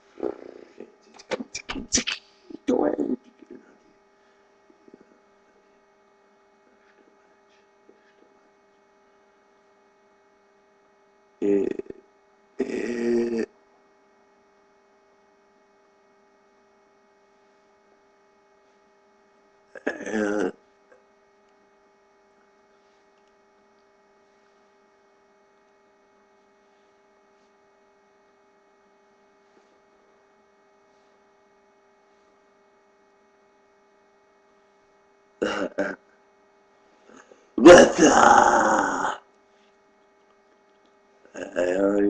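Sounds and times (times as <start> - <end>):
faint electrical hum: 0.0 - 42.0
man's voice: 0.2 - 3.6.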